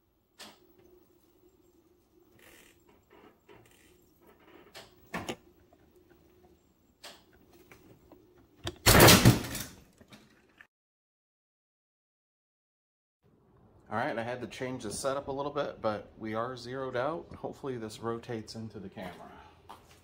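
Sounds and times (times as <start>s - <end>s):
resin bait ticking and creaking: 2.3s - 5.1s.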